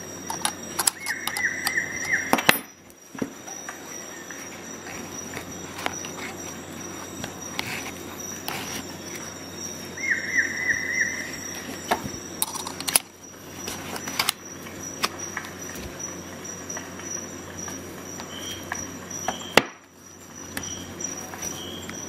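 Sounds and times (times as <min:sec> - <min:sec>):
sharp clicks: 0:00.2 - 0:02.7
chirps falling in pitch: 0:00.9 - 0:02.8, 0:09.8 - 0:12.4.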